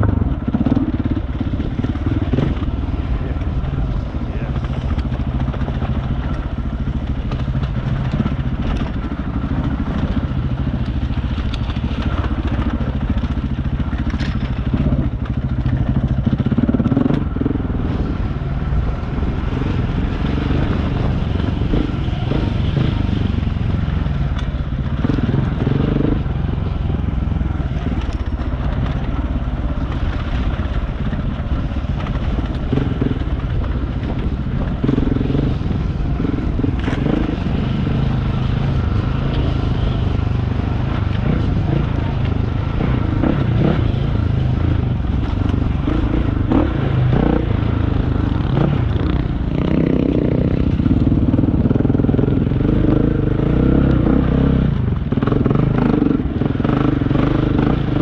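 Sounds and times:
clicks and clatters from trail: 0.0s - 18.2s, 24.0s - 47.5s
motorcycle engine running: 0.0s - 58.0s.

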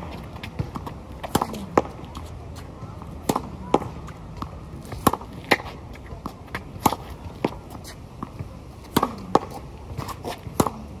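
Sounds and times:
racket strings hitting tennis ball: 8.2s - 11.0s.

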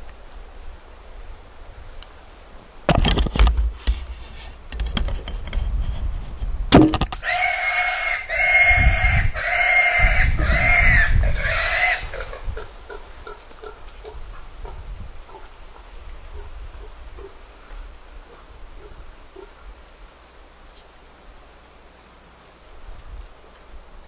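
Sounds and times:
sharp knocks: 6.7s - 7.2s
wild hog squealing: 7.2s - 12.3s.

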